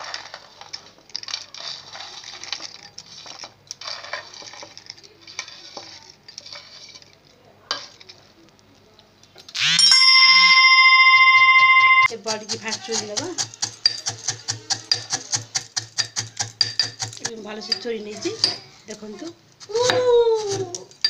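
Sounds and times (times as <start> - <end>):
fried dumplings crackling and crunching: 0.0 - 9.7
loud steady ringing tone: 9.8 - 12.1.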